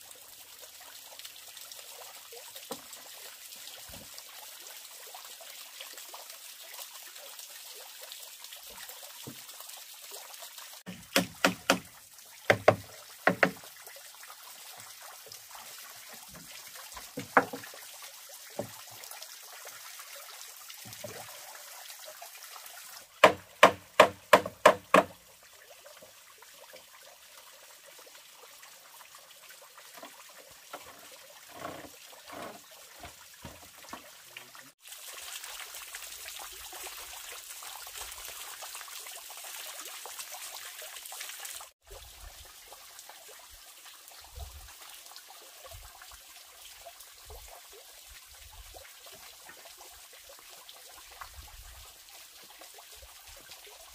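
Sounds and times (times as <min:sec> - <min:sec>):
water trickling into pond: 0:00.0 - 0:53.9
hammer striking nails into wood: 0:10.9 - 0:11.9, 0:12.5 - 0:13.6, 0:23.2 - 0:25.1.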